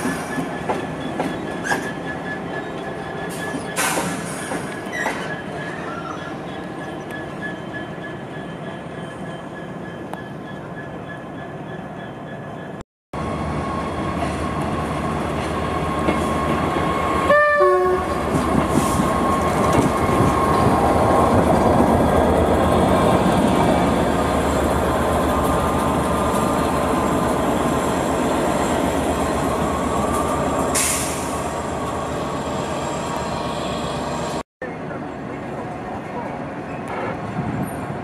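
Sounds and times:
diesel locomotive engine passing: 5.6 - 38.0
two-note train horn: 17.3 - 18.2.

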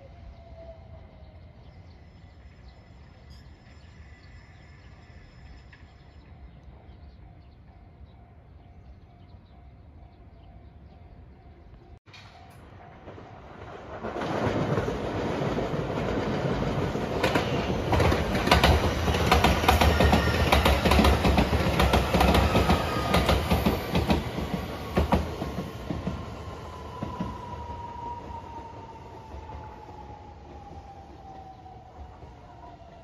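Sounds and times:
train wheels clicking over rail joints: 12.1 - 27.8.

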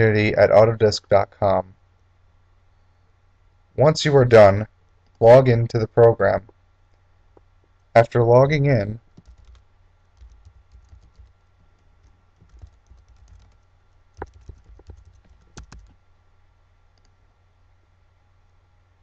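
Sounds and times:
typing on computer keyboard: 9.2 - 9.6, 10.2 - 16.0.

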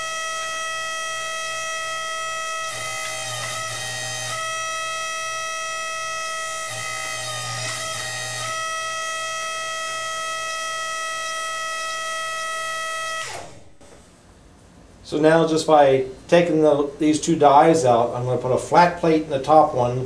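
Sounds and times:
hydraulic pump whining: 0.0 - 14.3.

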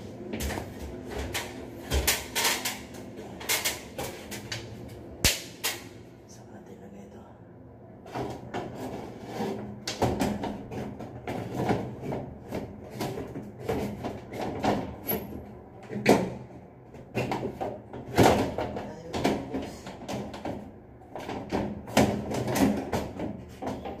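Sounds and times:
steady low hum: 0.0 - 24.0
sheet-metal knocks and rattles: 8.0 - 24.0.

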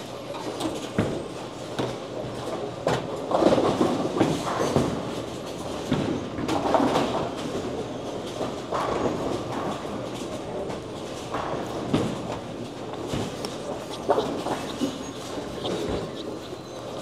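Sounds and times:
bowling balls rolling: 8.3 - 17.0.

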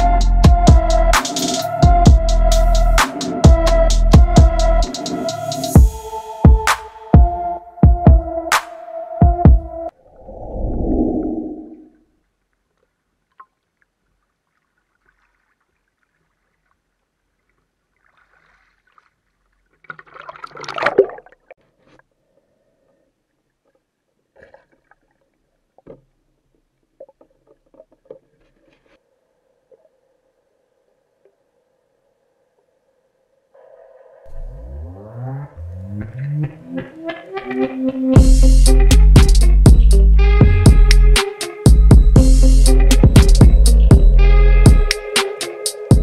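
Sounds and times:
person splashing into water: 18.0 - 19.2, 19.8 - 21.5.

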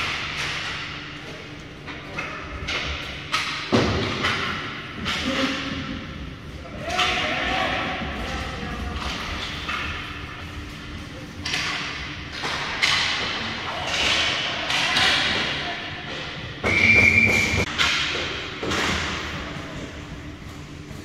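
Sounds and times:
pucks and sticks hitting boards: 0.0 - 20.1
referee's whistle blast: 16.6 - 17.6.

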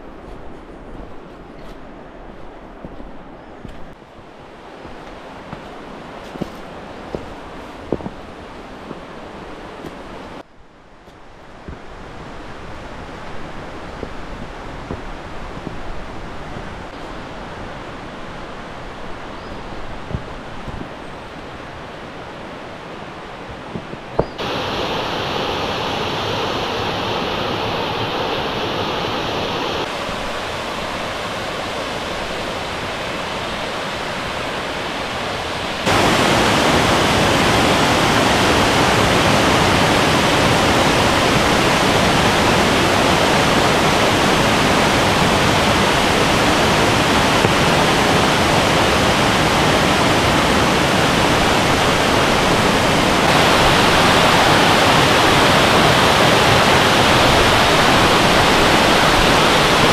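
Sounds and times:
waterfall rushing: 24.2 - 59.9.

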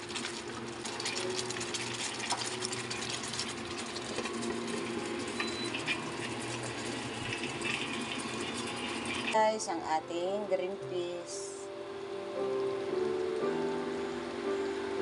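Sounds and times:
sauce bubbling in a pan: 0.0 - 9.4
low steady hum: 0.0 - 15.0.

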